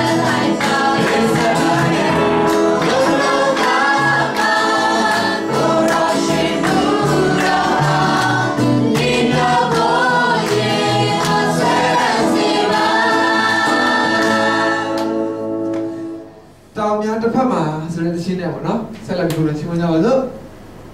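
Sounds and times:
guitar bass and drums: 0.0 - 4.6
men and women singing: 0.0 - 15.3.

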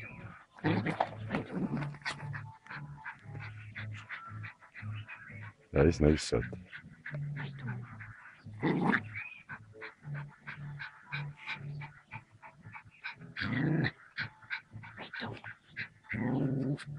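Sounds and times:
puppy growling and yapping: 0.6 - 4.3, 7.1 - 9.4, 13.1 - 16.9.

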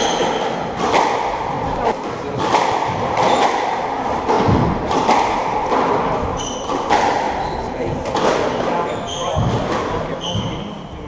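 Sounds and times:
squash ball knocking: 0.0 - 10.5
shoes squeaking on wooden floor: 6.3 - 7.8, 8.6 - 10.7.

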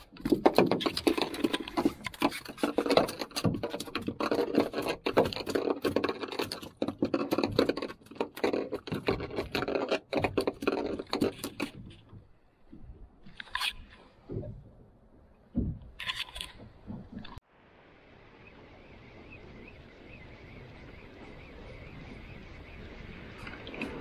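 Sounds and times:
fish flapping on boat deck: 0.0 - 13.2.

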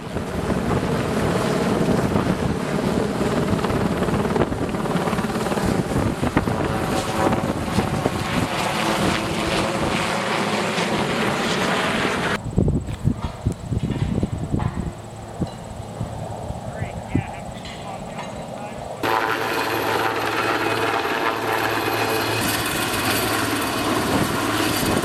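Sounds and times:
helicopter flying overhead: 0.0 - 12.5, 13.2 - 25.0.

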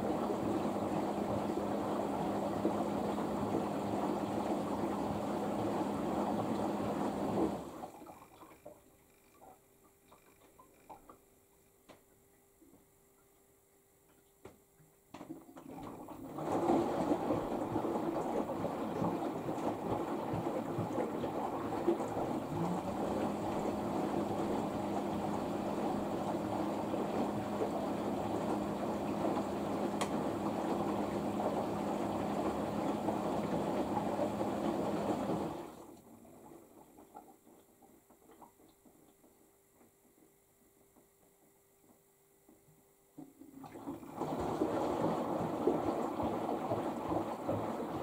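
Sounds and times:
water rushing into washing machine: 0.0 - 9.4, 15.2 - 39.1, 43.2 - 48.0
low steady hum: 0.0 - 48.0.

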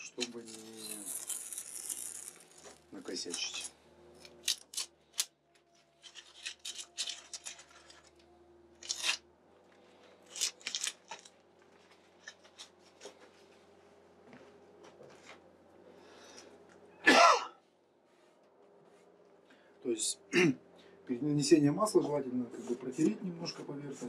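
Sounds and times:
tape crumpled in hands: 0.0 - 3.7, 10.3 - 11.3
masking tape peeling off wood: 0.0 - 5.3, 8.8 - 9.2, 10.2 - 11.3.

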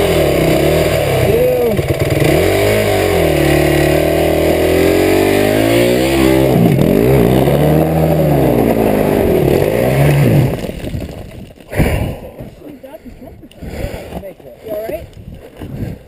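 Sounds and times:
dirt bike engine revving: 0.0 - 10.9.

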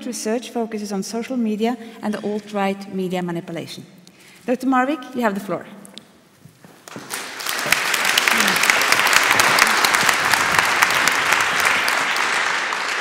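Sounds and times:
audience applauding: 6.8 - 13.0.

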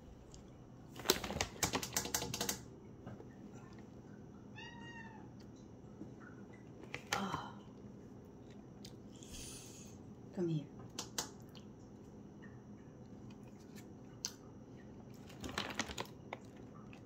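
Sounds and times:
cat meowing: 4.5 - 5.3.

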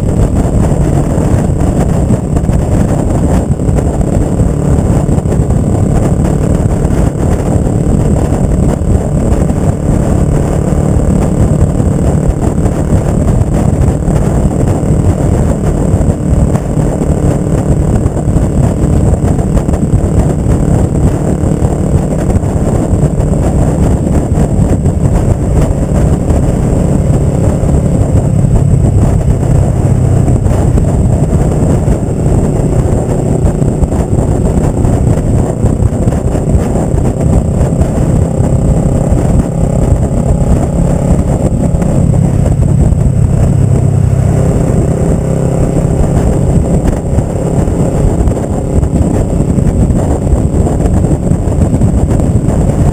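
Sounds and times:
motorcycle engine running loud: 0.0 - 52.9.

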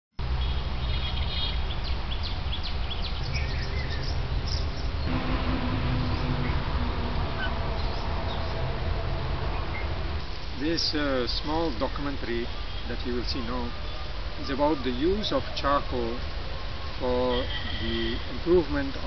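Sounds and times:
birds chirping: 0.2 - 19.0
steady low rumble: 2.8 - 11.2
steady hum: 3.0 - 11.2.

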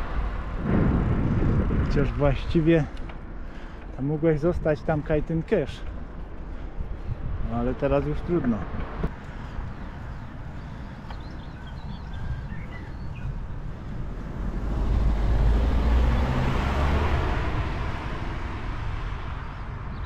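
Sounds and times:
car passing by: 13.8 - 20.0.

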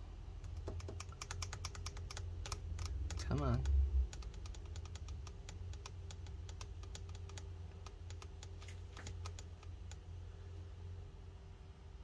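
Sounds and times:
steady low hum: 0.0 - 12.0
laptop keyboard key clicks: 0.4 - 10.0.

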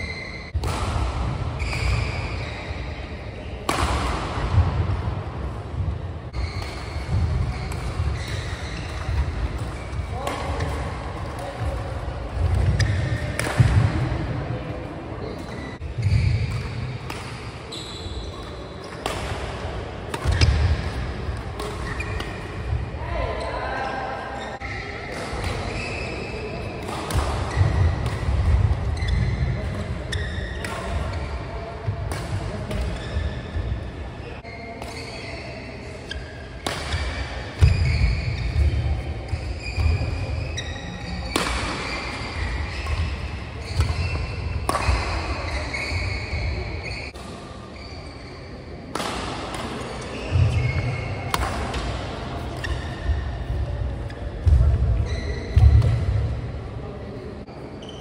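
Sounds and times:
shoes squeaking on court: 0.0 - 0.6, 6.3 - 11.8, 15.2 - 16.9, 20.2 - 22.8, 24.4 - 31.7, 32.5 - 48.8, 49.7 - 51.5, 52.4 - 55.9
racket striking shuttlecock: 20.1 - 22.6, 26.8 - 29.0, 42.8 - 45.6, 48.9 - 49.9, 51.3 - 52.8.

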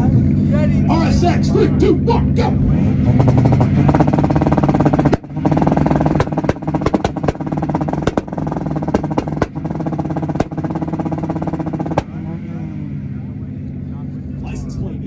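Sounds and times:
car engine on rev limiter: 0.0 - 15.0
exhaust pops and bangs: 3.1 - 12.3.

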